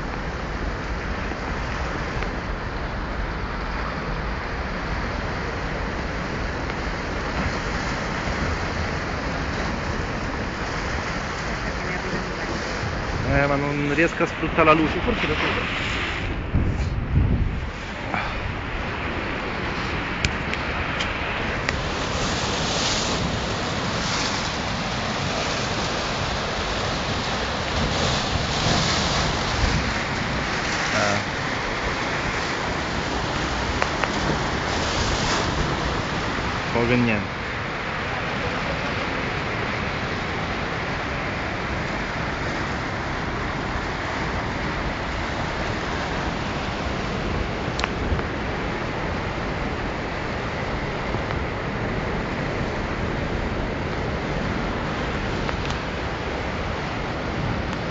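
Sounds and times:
wind buffeting microphone: 0.0s - 36.8s
rushing river water: 0.0s - 57.9s.

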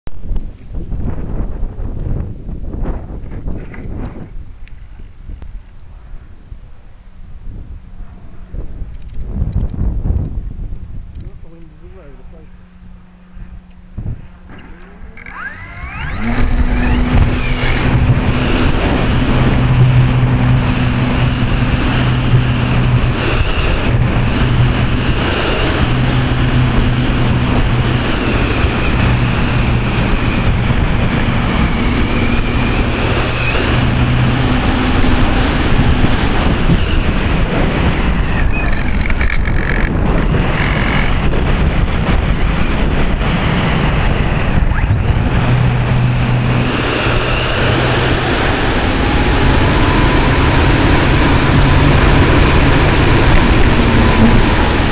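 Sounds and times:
wind rushing over microphone: 0.1s - 54.9s
electric motor and propeller drone: 7.9s - 54.9s.

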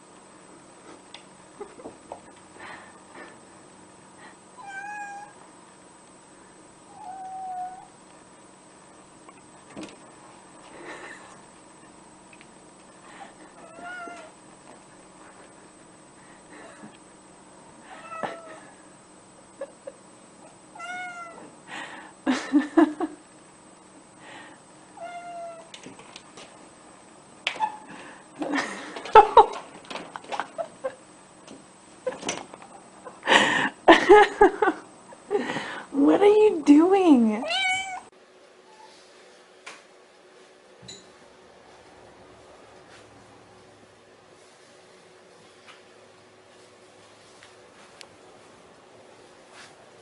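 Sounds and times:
cat meowing: 4.6s - 5.4s, 6.9s - 7.9s, 13.6s - 14.3s, 20.8s - 21.4s, 25.0s - 25.7s, 37.4s - 38.1s.

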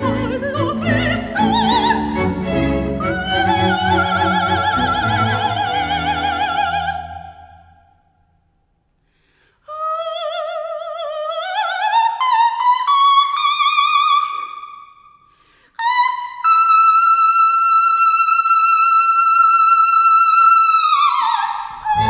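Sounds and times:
soprano singing: 0.0s - 7.7s, 21.0s - 22.0s.

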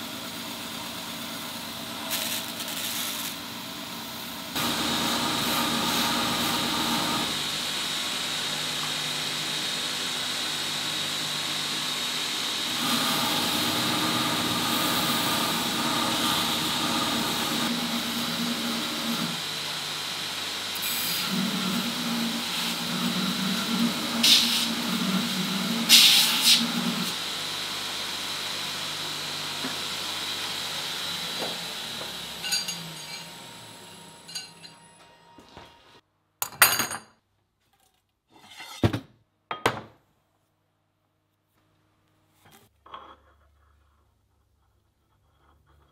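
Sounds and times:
belt grinder whining: 12.5s - 27.3s, 28.8s - 35.0s
steel grinding on abrasive belt: 20.8s - 27.2s, 30.8s - 34.9s
steel tubes clanking: 32.4s - 33.4s.

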